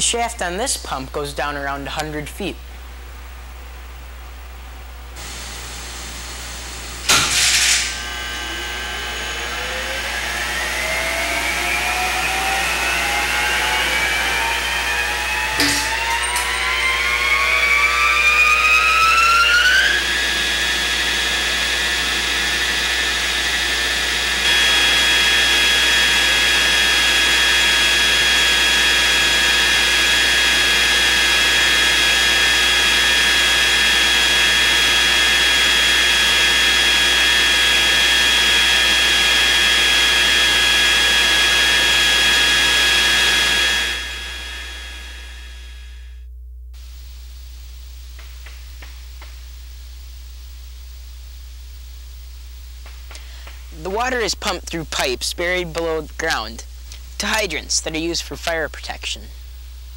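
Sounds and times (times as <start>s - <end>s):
electric motor whining and humming: 5.2s - 46.1s.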